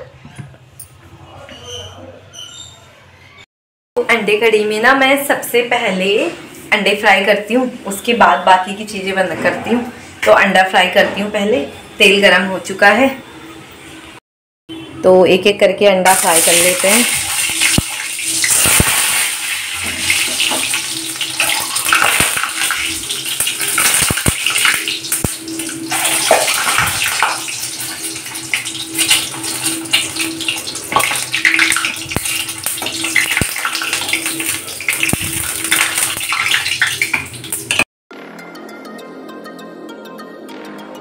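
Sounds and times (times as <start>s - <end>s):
eggs sizzling in hot oil: 16.0s - 37.9s.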